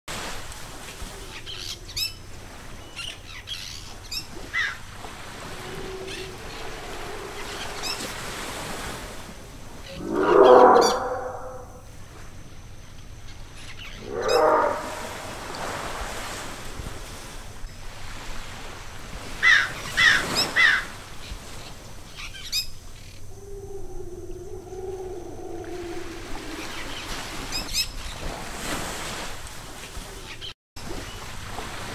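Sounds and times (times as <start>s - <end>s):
lower bird calls: 5.4s - 9.0s, 9.8s - 11.8s, 13.7s - 15.9s, 22.3s - 27.9s
birds chirping and calling: 9.9s - 11.6s, 13.9s - 15.3s.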